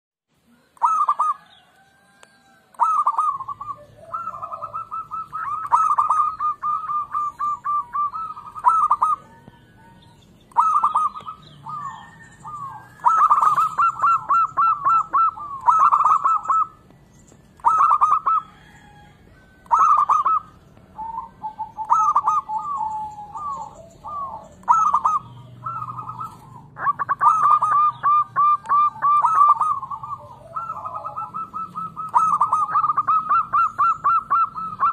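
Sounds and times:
dove cooing: 0.5 - 34.9.

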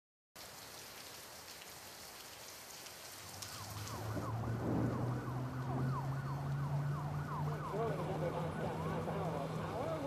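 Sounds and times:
steady rain hiss: 0.4 - 6.9
warbling emergency siren: 3.3 - 10.0.

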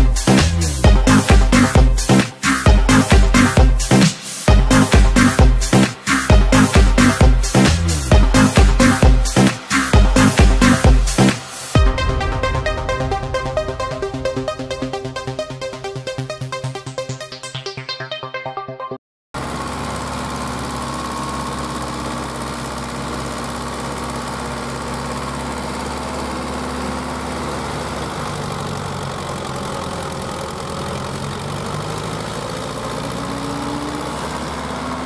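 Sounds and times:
diesel tractor engines under load: 19.4 - 35.0.

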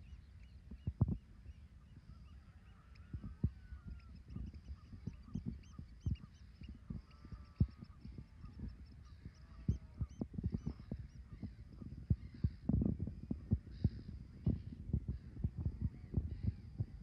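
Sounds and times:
high bird chirps: 0.0 - 12.5.

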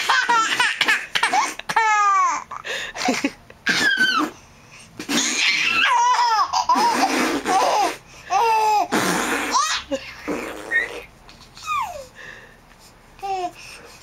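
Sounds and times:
baby laughing and squealing: 0.0 - 2.6, 3.6 - 4.4, 5.1 - 12.1.

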